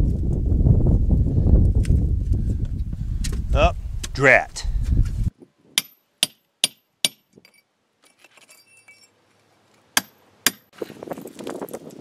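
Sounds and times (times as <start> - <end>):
hammer striking chisel on concrete: 5.8 - 7.3, 10.0 - 10.8
light metallic clinks: 7.4 - 9.1.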